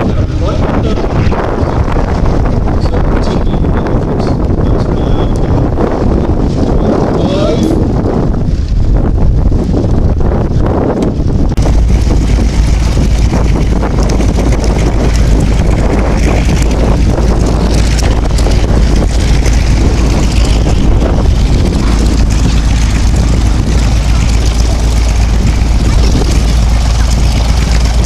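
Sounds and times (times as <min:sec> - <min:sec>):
wind buffeting microphone: 0:00.0 - 0:28.0
propeller plane passing overhead: 0:11.5 - 0:28.0.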